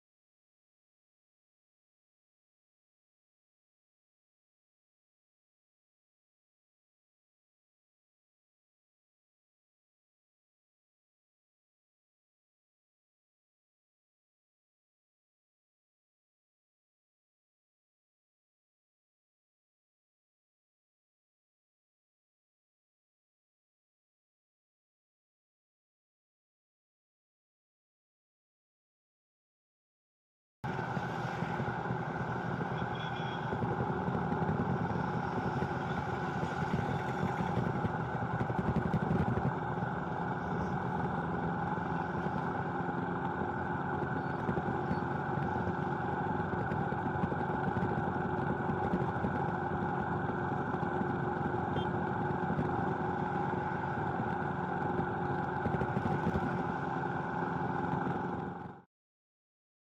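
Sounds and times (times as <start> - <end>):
vehicle engine drone and road noise: 30.6 - 58.9.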